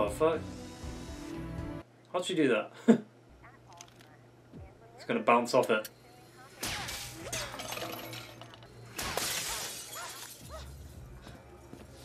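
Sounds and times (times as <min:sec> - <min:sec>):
shattering crashes: 0:06.6 - 0:10.4
tinkling debris: 0:07.0 - 0:10.6.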